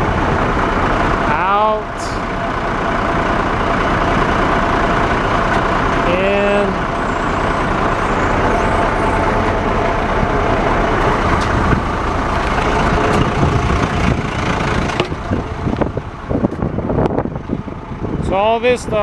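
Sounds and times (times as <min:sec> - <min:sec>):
vacuum truck running: 0:00.0 - 0:19.0.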